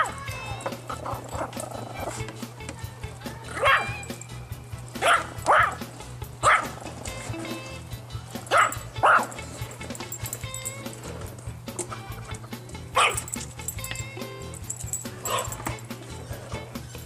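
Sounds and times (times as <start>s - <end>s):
background music: 0.0s - 17.0s
small dog barking: 3.5s - 4.1s, 5.0s - 5.8s, 6.4s - 6.8s, 8.5s - 9.4s, 13.0s - 13.3s, 15.2s - 15.6s.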